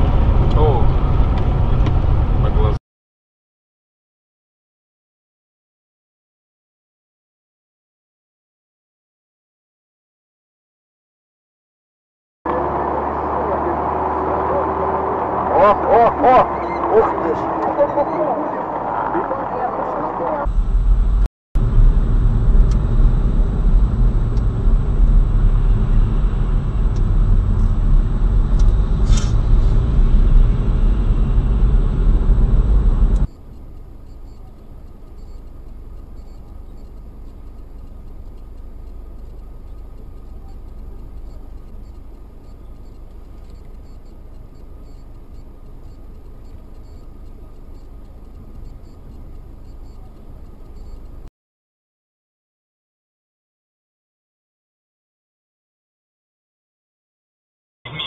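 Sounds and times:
car road and engine rumble: 0.0 - 2.8, 12.5 - 51.3.

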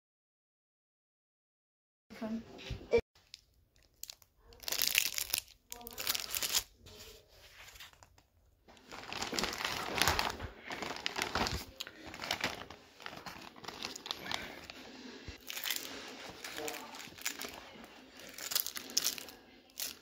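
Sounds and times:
plastic bag crinkling: 3.2 - 20.0.

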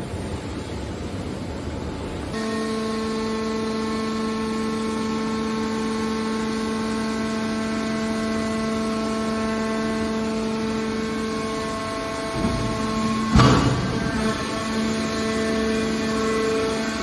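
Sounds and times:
hydraulic pump droning whine: 2.3 - 17.0.

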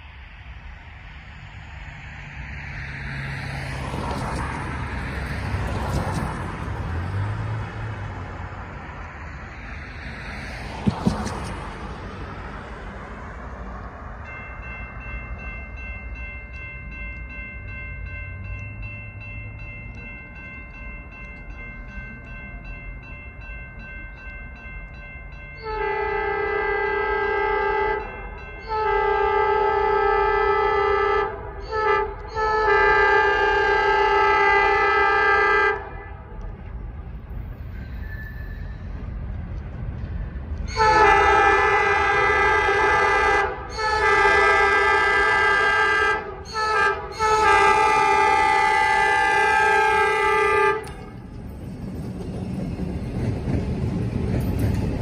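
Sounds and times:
road traffic passing: 0.0 - 55.0
crossing warning bell ringing: 11.5 - 39.3, 40.0 - 55.0
locomotive air horn blasts: 25.6 - 36.4, 40.6 - 51.2.

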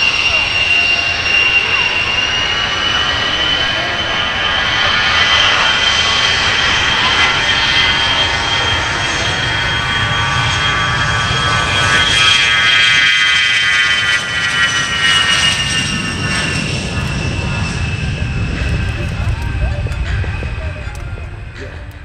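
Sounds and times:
jet engines high whine and roar: 0.0 - 22.0
low rumble: 14.2 - 22.0.

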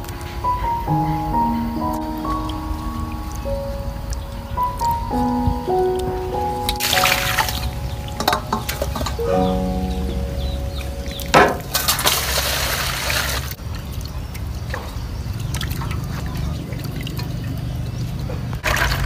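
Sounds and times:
water splashing and trickling: 0.0 - 19.0
knock: 11.4 - 11.6
water poured into metal basin: 11.6 - 13.6, 18.6 - 19.0.

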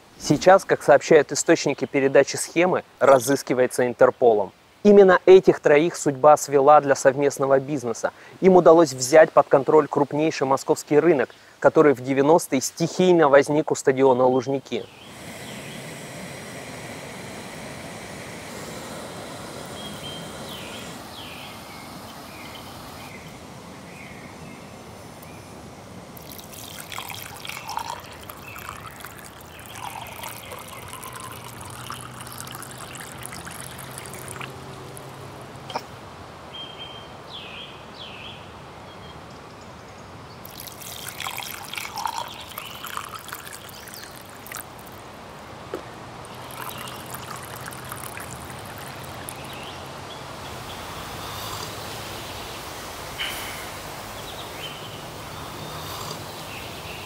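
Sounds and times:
coffee pouring into mug: 26.2 - 35.7, 40.4 - 45.0, 46.3 - 49.7
water pouring into glass: 26.2 - 35.8, 40.4 - 45.1, 46.2 - 49.7.

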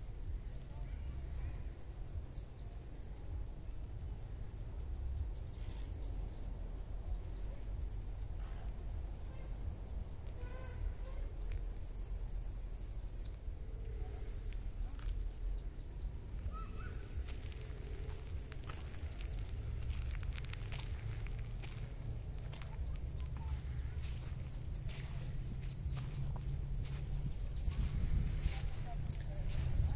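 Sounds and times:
birds chirping and calling: 0.0 - 29.9
steady low rumble: 0.0 - 29.9
bird trill: 15.4 - 19.8.

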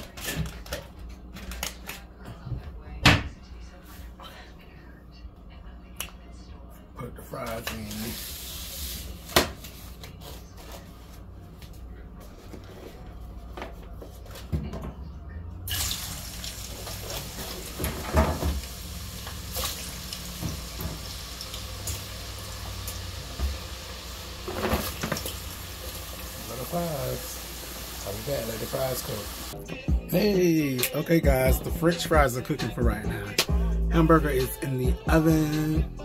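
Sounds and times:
fries sizzling in hot oil: 7.8 - 9.1, 15.7 - 29.6.

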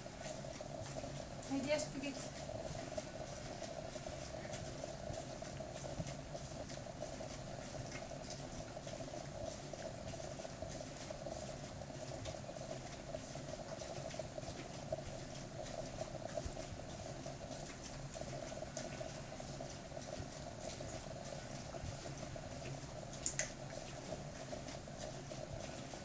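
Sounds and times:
faint steady hum: 0.0 - 26.0
soft clicks and smacks: 23.2 - 23.6.

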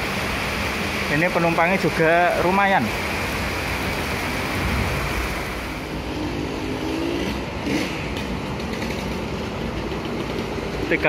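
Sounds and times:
heavy rain on pavement: 0.0 - 6.0.

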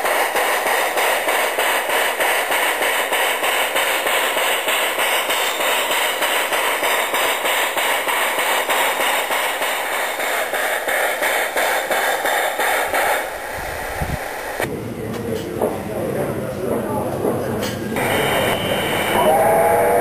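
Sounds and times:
steam locomotive chuffing: 0.0 - 14.7, 18.0 - 20.0
steam locomotive hissing: 0.0 - 14.7, 17.9 - 20.0.

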